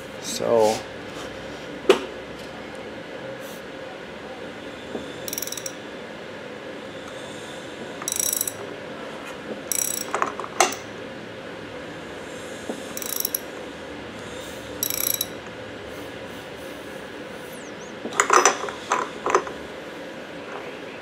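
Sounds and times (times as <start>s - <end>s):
socket ratchet clicking: 5.3s - 5.8s, 8.0s - 8.6s, 9.7s - 10.9s, 12.9s - 13.5s, 14.8s - 15.4s.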